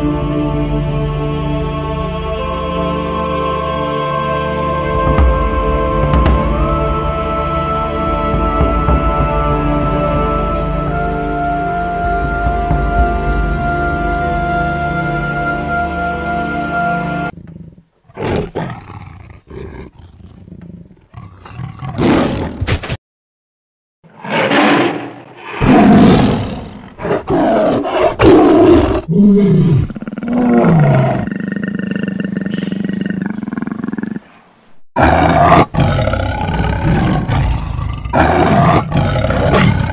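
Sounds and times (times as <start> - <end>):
tiger roaring and growling: 17.3 - 22.6, 24.1 - 34.4, 35.0 - 39.9.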